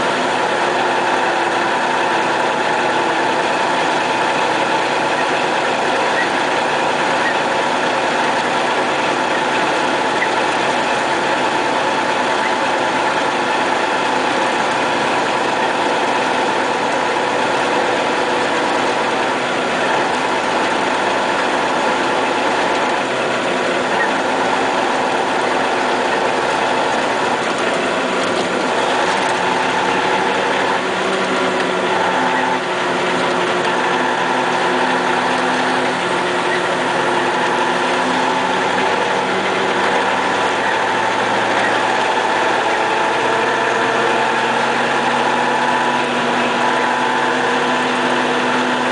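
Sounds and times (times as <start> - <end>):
road noise: 0.0 - 48.9
truck diesel engine drone: 0.0 - 48.9.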